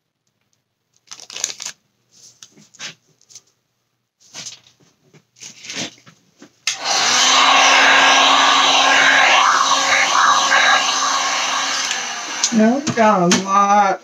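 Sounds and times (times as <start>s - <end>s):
heat gun blowing air: 6.7s - 13.4s.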